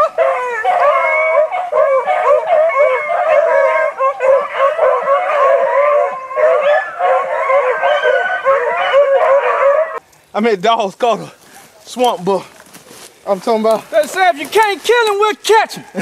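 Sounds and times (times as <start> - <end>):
beagles baying: 0.0 - 10.0.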